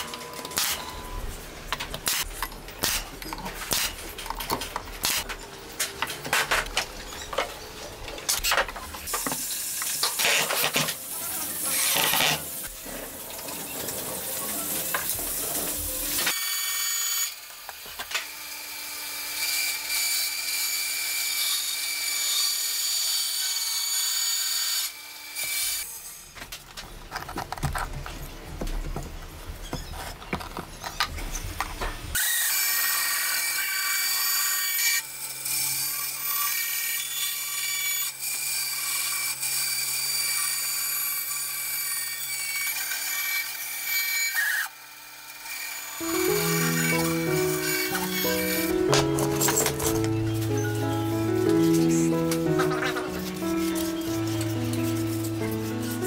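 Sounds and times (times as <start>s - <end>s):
power tools working wood: 32.1s - 56.0s
bandsaw humming: 45.5s - 56.0s.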